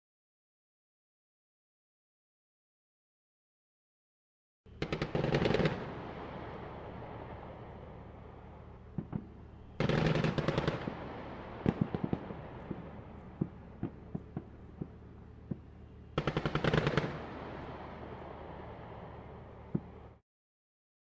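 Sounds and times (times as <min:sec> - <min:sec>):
machine-gun fire bursts: 0:04.8 - 0:06.0, 0:09.8 - 0:11.0, 0:16.2 - 0:17.4.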